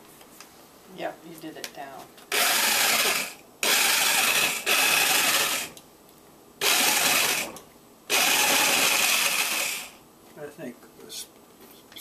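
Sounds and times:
electric saw cutting squash: 2.3 - 5.8, 6.6 - 10.0.

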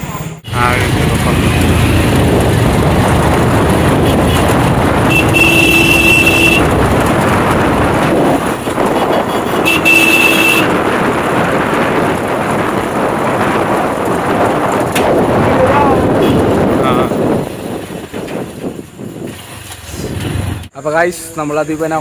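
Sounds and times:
wind noise: 0.0 - 20.7
motorbike engine running: 0.5 - 17.0
motorbike horn: 4.0 - 6.8, 8.9 - 10.8, 16.2 - 16.5.

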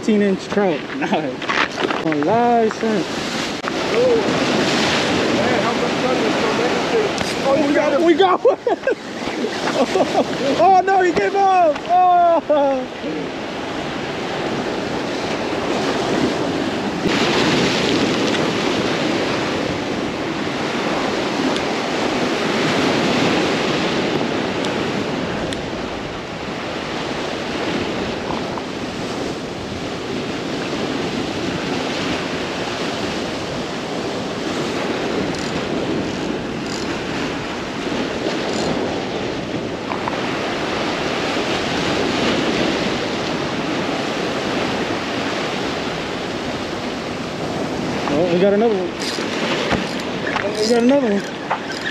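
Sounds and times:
sea waves washing against rocks: 0.0 - 51.9
wind buffeting microphone: 0.0 - 51.9.

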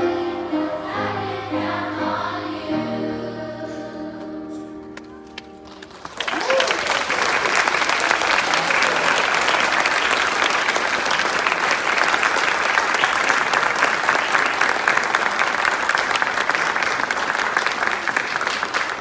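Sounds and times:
audience applauding: 5.0 - 19.0.

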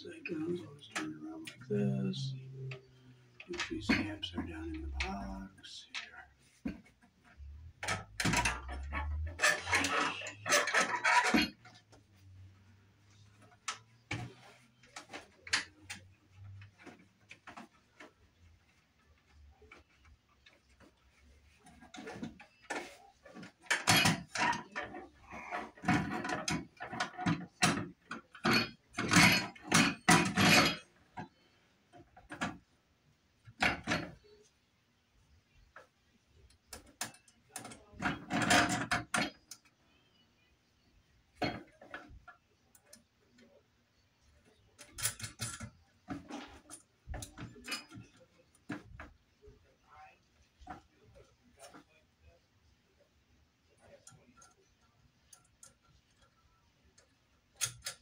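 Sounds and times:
metal light fixture scraping and rattling: 0.1 - 12.5, 20.6 - 31.4, 36.7 - 39.6, 44.5 - 49.1.

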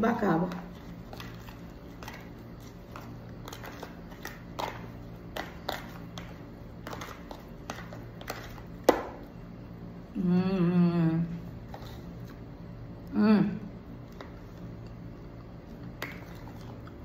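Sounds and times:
steady low hum: 0.0 - 17.0
spoon scraping plastic tub: 0.5 - 8.8.

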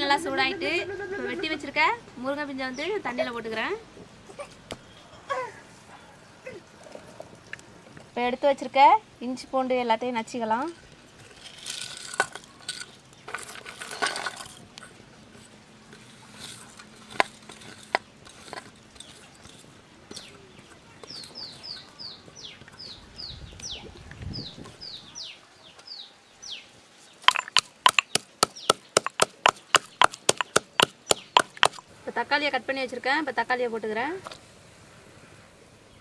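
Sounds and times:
bird chirping: 18.8 - 31.8
pestle pounding in mortar: 27.3 - 31.8.

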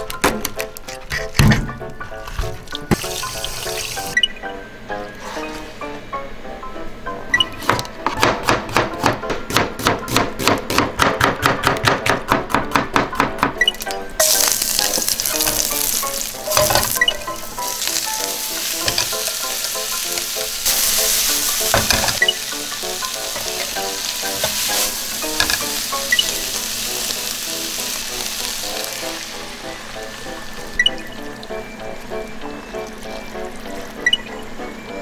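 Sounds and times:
oil sizzling in frying pan: 3.0 - 4.2, 13.8 - 31.7
spatula clattering against pan: 21.7 - 22.4, 25.3 - 25.8.

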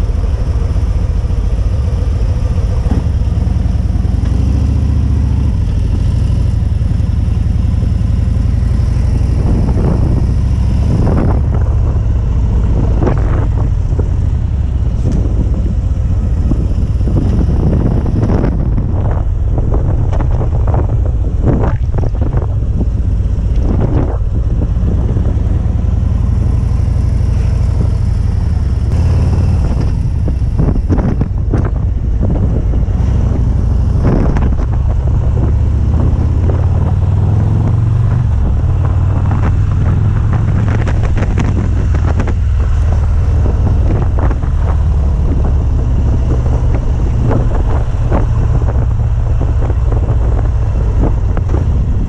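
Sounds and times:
motorcycle engine rumbling: 0.0 - 52.0
wind buffeting microphone: 0.0 - 52.0.

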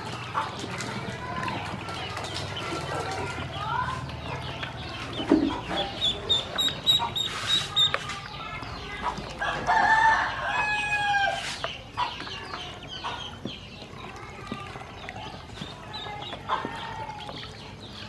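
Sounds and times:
ducklings peeping: 0.0 - 18.0.

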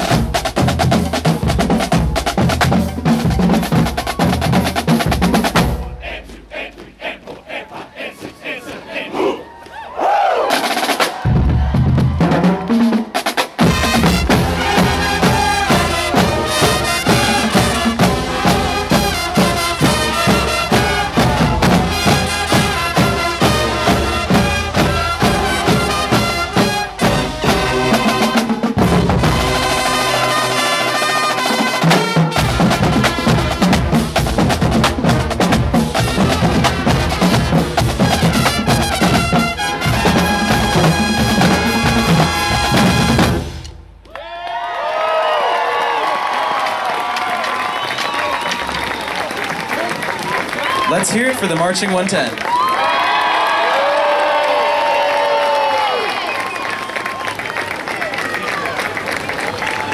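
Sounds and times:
snare drums: 0.0 - 8.1, 10.4 - 44.1
sousaphones: 5.8 - 9.6
trumpets: 13.6 - 43.7.

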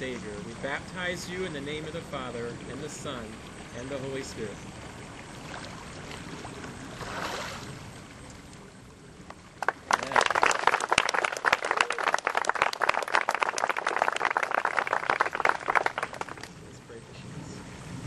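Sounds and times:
water sloshing: 0.0 - 9.8
crowd applauding: 9.6 - 16.5.

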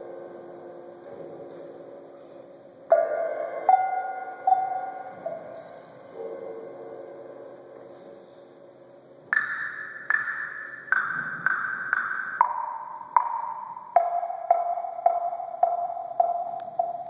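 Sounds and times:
metal percussion notes ringing: 2.1 - 8.2, 9.3 - 17.0.

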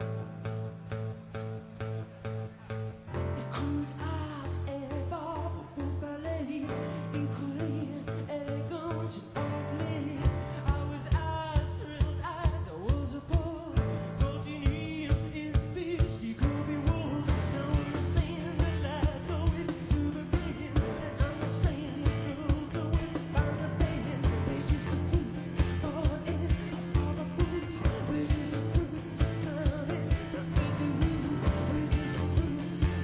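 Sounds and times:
rock band playing live: 0.0 - 33.0
person singing: 2.7 - 33.0
steady drum beat: 11.1 - 33.0.

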